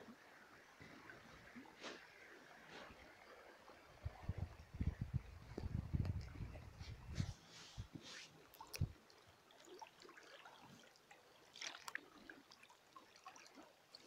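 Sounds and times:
water trickling and dripping: 0.1 - 14.0
small ticks and splashes: 8.4 - 14.0.

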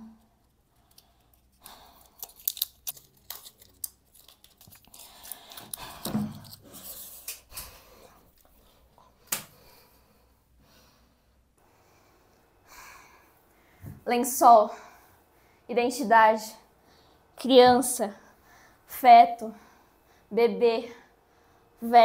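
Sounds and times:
blister pack crackling and tearing: 0.9 - 7.4.

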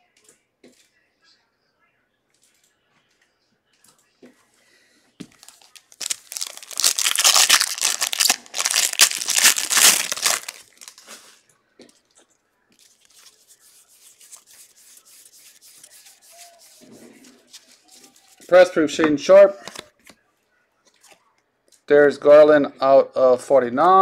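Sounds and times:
foil wrapper tearing and crinkling: 5.4 - 11.2.

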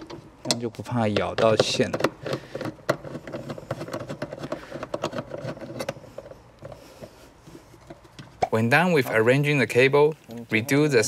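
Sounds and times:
bit clicking and rattling on screw: 0.0 - 6.8.

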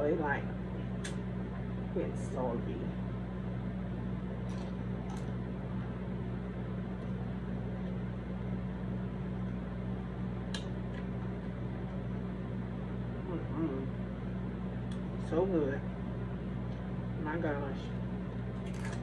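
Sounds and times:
low mechanical hum: 0.0 - 19.0
chips being chewed: 18.6 - 19.0.

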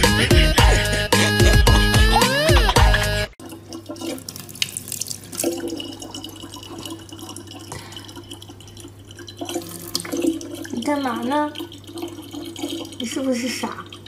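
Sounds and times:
faucet trickling into plastic cup: 3.4 - 14.0.

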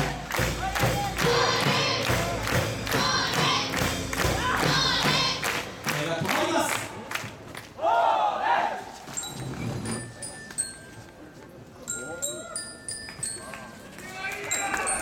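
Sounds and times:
large drum beating: 0.0 - 6.4
group shouts and chanted calls: 7.8 - 9.0.

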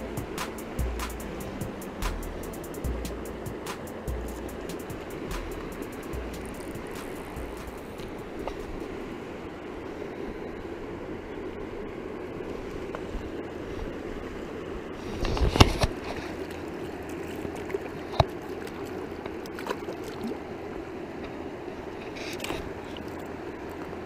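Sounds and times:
river rushing: 0.0 - 15.2.

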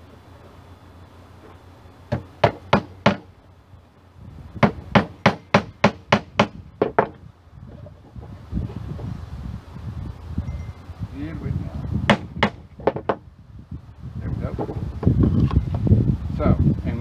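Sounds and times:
hammer blows on nail: 4.6 - 7.2, 12.0 - 13.2.

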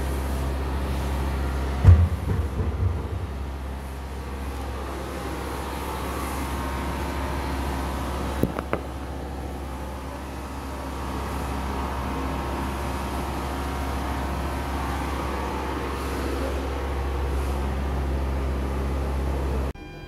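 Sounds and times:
low mechanical hum: 0.0 - 20.0.

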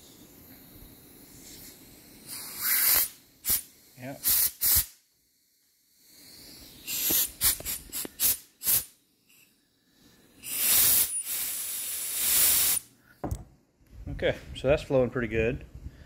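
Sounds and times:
compressed air blow gun hissing: 0.0 - 9.4, 10.0 - 12.9.

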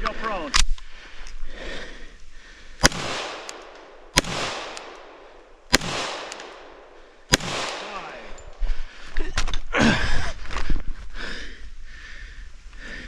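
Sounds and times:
pistol shots echoing: 2.8 - 8.5.

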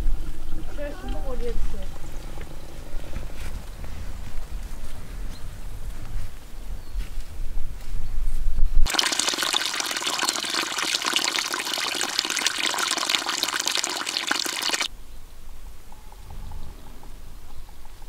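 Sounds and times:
water splashing into a pool: 8.9 - 14.9.

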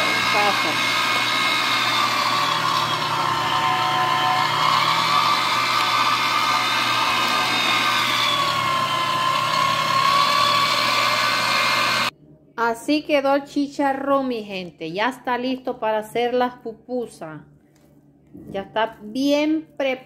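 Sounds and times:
meat grinder motor whining: 0.0 - 12.1.

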